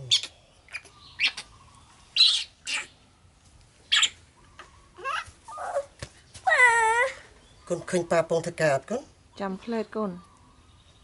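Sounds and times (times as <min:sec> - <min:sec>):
baby monkey squealing: 0:00.0 - 0:01.5, 0:02.2 - 0:03.0, 0:03.9 - 0:04.2, 0:05.0 - 0:05.9.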